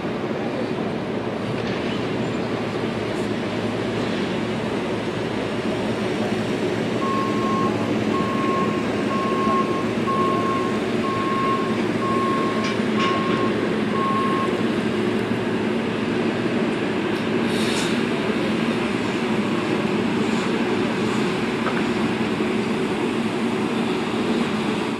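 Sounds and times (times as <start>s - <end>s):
vehicle engine drone: 0.0s - 24.9s
backup alarm beeping: 7.0s - 14.6s
brief hiss: 17.5s - 18.0s.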